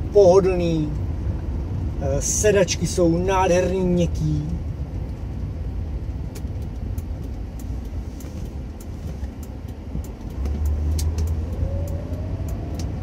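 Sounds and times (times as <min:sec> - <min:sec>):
car engine and road rumble: 0:00.0 - 0:13.0
light clicks: 0:06.3 - 0:13.0.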